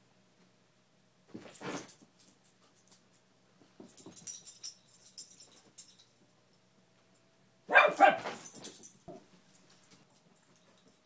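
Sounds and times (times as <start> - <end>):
dog barking: 7.7 - 8.5.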